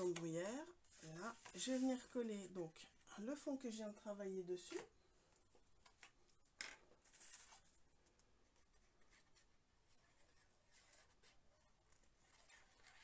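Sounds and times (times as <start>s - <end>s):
paper rustling scrapes: 12.0s - 13.0s.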